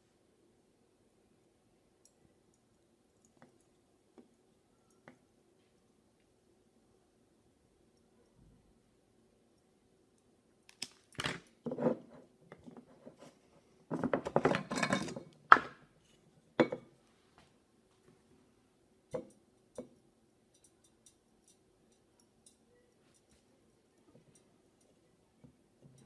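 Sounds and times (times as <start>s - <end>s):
knocks and clinks on tabletop: 11.2s - 12.9s, 13.9s - 15.8s, 16.6s - 16.9s
lid scraping and rattling on jar: 13.9s - 15.3s.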